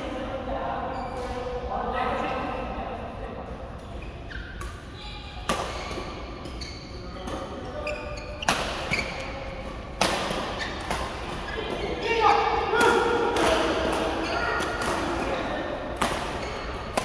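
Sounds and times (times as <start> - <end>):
sneakers squeaking on court: 3.8 - 12.0, 16.1 - 17.0
racket striking shuttlecock: 5.4 - 6.6, 8.4 - 9.2, 9.9 - 11.4, 15.9 - 17.0.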